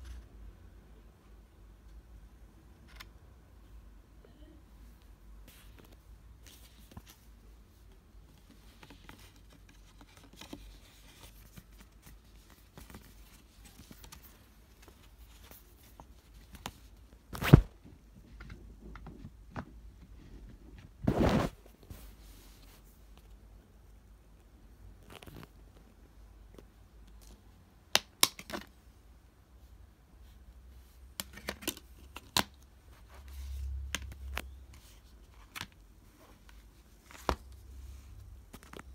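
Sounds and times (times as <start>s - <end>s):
paper and card rustling: 8.2s - 17.7s.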